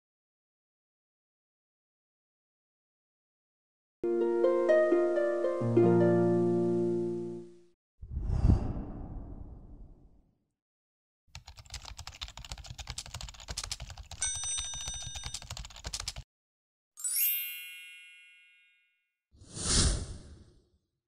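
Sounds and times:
rapid typing-like clicking: 0:11.4 - 0:16.3
bell ringing: 0:14.2 - 0:15.5, 0:17.0 - 0:18.9.

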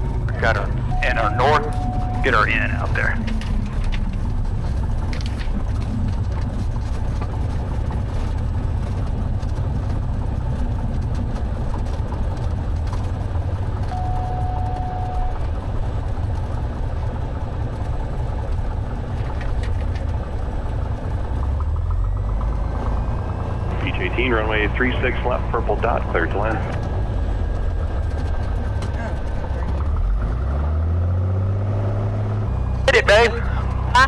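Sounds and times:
propeller plane engine drone: 0:00.0 - 0:34.0
short steady tone: 0:00.9 - 0:02.4, 0:13.9 - 0:15.5.

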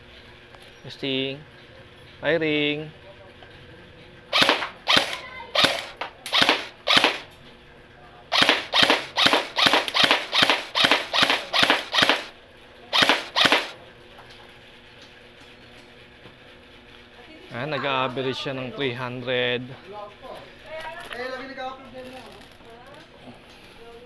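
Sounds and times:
airsoft gun shots: 0:04.3 - 0:07.3, 0:08.3 - 0:13.8.

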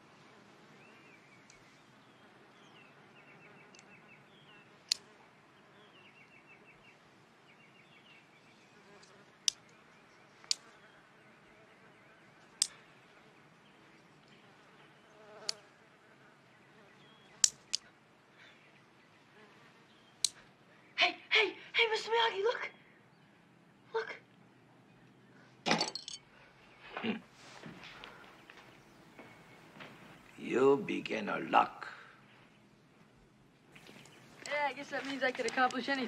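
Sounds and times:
housefly buzzing: 0:08.7 - 0:09.8, 0:14.4 - 0:17.8.

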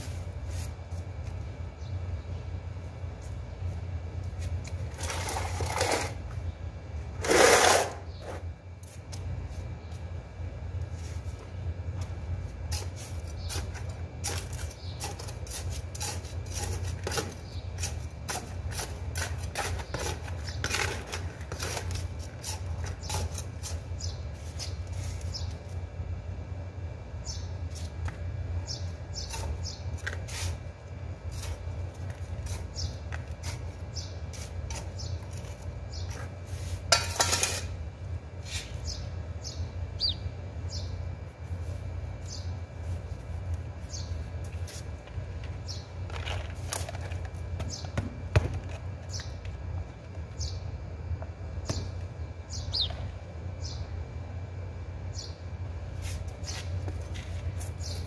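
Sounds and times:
metal trowel scraping soil: 0:04.9 - 0:06.2, 0:07.2 - 0:08.4, 0:12.7 - 0:25.2, 0:36.2 - 0:37.8.

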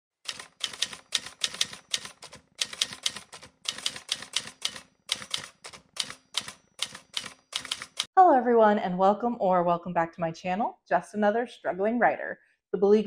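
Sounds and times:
typewriter keys clacking: 0:00.3 - 0:08.1.

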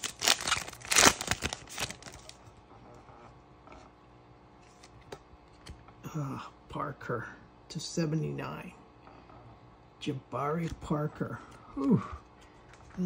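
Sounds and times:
foil wrapper tearing and crinkling: 0:00.0 - 0:02.4.

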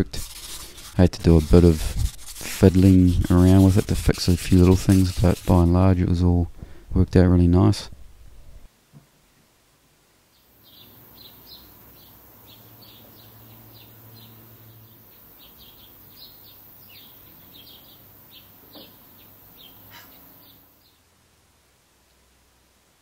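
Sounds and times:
faint high hiss: 0:00.0 - 0:23.0
small birds chirping: 0:10.3 - 0:21.0.

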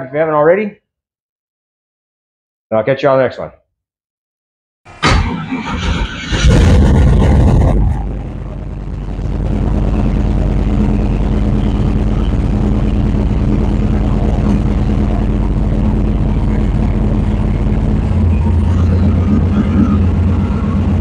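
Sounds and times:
muffled truck engine running: 0:04.9 - 0:21.0.

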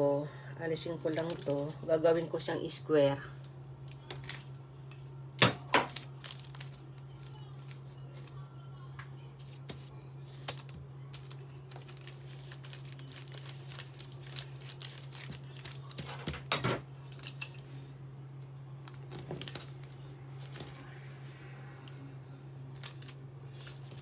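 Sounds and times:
steady low hum: 0:00.0 - 0:24.0
baking paper rustling: 0:05.9 - 0:08.5, 0:09.3 - 0:16.5, 0:18.8 - 0:21.0, 0:22.7 - 0:24.0.

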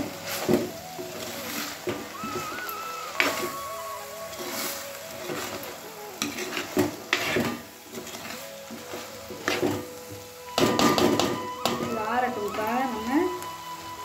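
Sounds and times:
light sizzle: 0:00.0 - 0:14.0
spoon scraping a pan: 0:04.3 - 0:12.6.

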